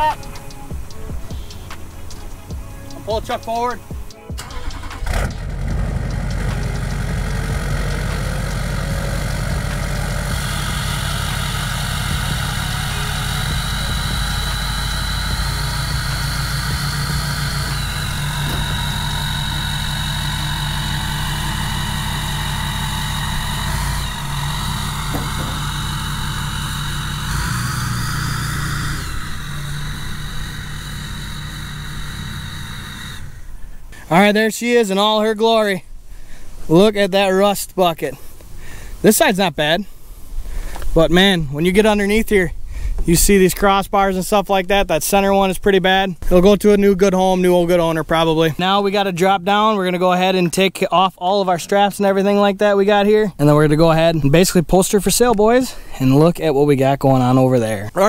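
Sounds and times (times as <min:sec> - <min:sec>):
diesel pickup idling: 0:00.0 - 0:34.2
thin high whine: 0:00.0 - 0:35.9.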